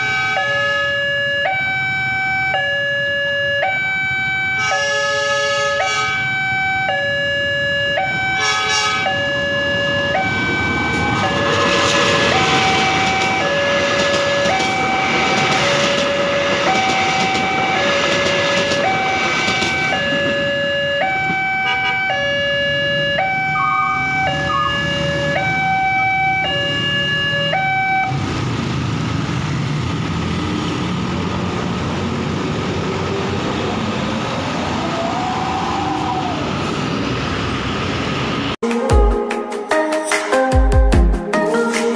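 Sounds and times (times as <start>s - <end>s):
two-tone crossing alarm: 0.0s - 28.2s
road traffic rumble: 0.0s - 38.6s.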